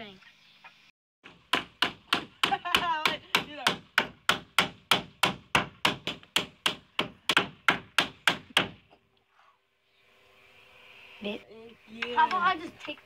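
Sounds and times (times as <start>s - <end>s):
hammer striking wooden door frame: 1.2s - 8.8s.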